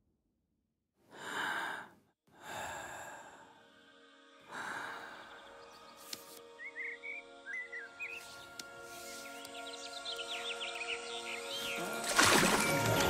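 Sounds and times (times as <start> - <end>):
person sighing: 1.1 - 3.5
bird chirping: 5.0 - 12.0.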